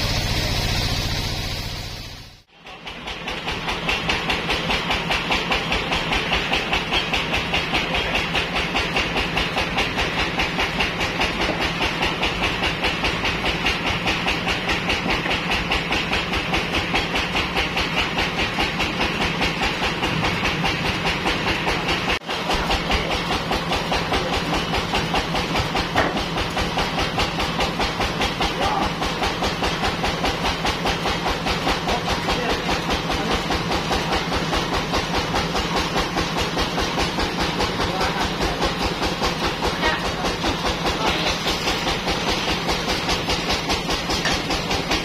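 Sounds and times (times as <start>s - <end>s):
band saw machinery running: 0.0s - 45.0s.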